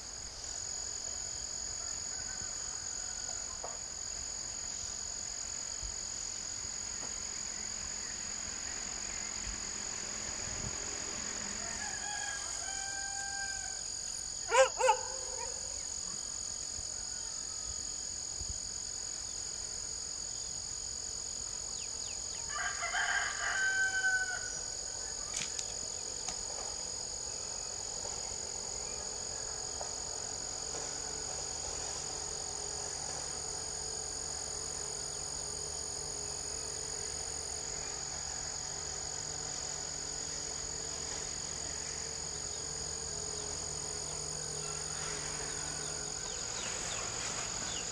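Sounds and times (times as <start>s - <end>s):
high-pitched insect drone: 0.0s - 47.9s
rooster crowing: 1.7s - 3.7s, 11.3s - 15.8s, 16.9s - 17.9s, 22.4s - 24.7s, 44.0s - 47.0s.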